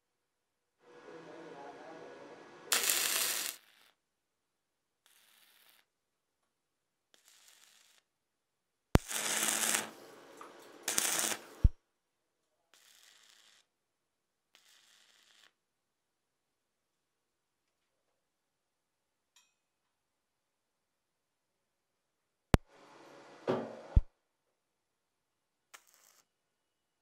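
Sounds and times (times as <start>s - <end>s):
welding arc crackling: 2.7s - 4.0s, 5.1s - 5.9s, 7.2s - 8.0s, 9.0s - 11.7s, 12.8s - 13.7s, 14.6s - 15.5s, 25.8s - 26.3s.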